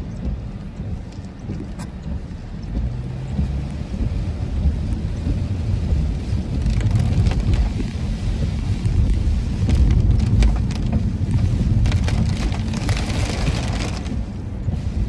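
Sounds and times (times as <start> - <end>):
car driving on wet road: 0.0 - 15.0
rain hitting car windshield: 0.0 - 15.0.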